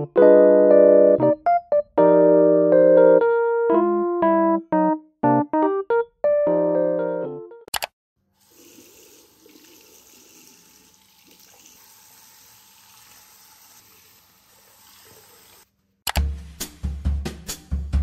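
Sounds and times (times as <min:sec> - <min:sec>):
tap running into basin: 0:08.5 - 0:15.6
music with drum beat: 0:16.2 - 0:18.0.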